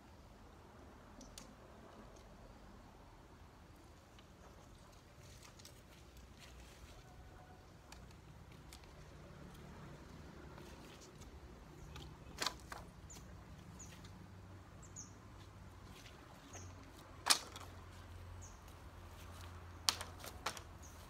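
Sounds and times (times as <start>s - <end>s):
small bird chirping: 11.7s - 16.9s.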